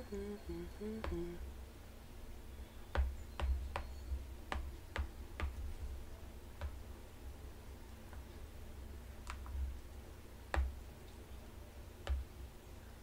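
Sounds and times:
person humming: 0.0s - 1.4s
taps on glass screen: 2.9s - 5.6s, 10.5s - 10.8s.

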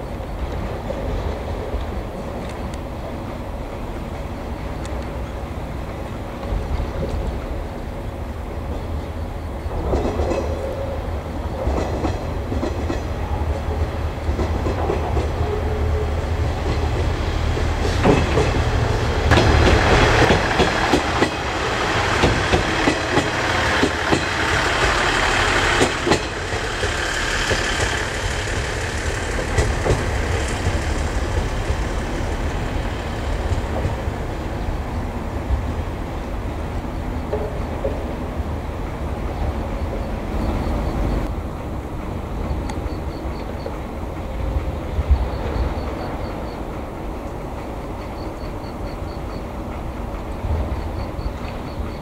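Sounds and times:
low train engine rumble: 0.0s - 52.0s
train wheels clattering over rail joints: 9.7s - 10.8s, 11.5s - 35.8s.

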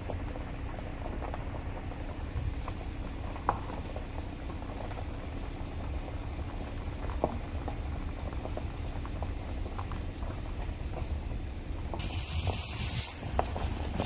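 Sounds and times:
wind buffeting microphone: 8.7s - 14.0s.

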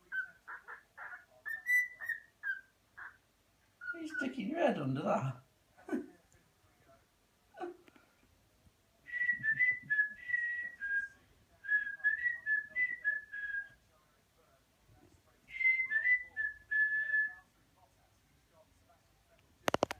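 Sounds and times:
cockatiel whistling a tune: 1.5s - 2.7s, 9.1s - 11.1s, 11.7s - 13.8s, 15.6s - 17.4s.

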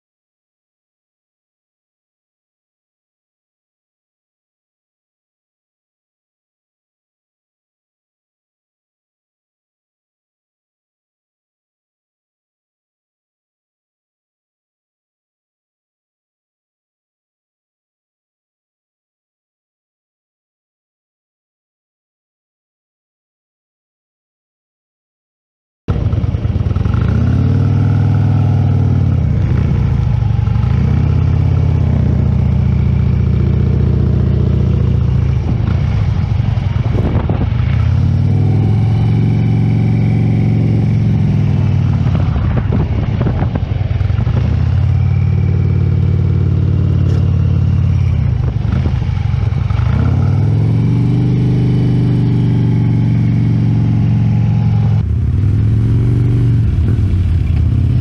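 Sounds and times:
motorcycle engine revving: 25.9s - 58.0s.

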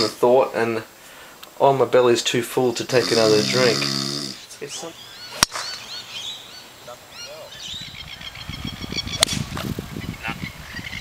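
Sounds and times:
birds chirping: 0.0s - 11.0s
golf club striking ball: 5.3s - 5.8s, 9.2s - 9.7s.

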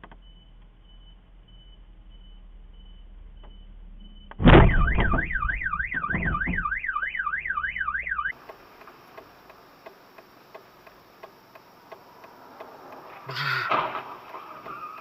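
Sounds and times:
faint regular ticks: 0.0s - 4.4s, 8.3s - 15.0s
car alarm wailing: 0.0s - 8.4s, 13.4s - 15.0s
car hitting truck thud: 4.4s - 7.0s, 13.6s - 14.8s.

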